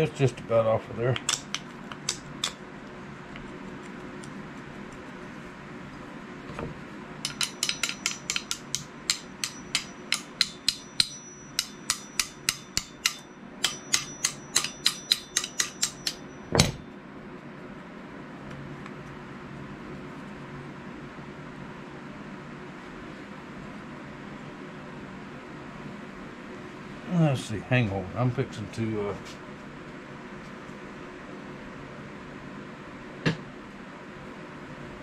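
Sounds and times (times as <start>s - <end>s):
small hammer tapping metal: 7.2s - 16.8s.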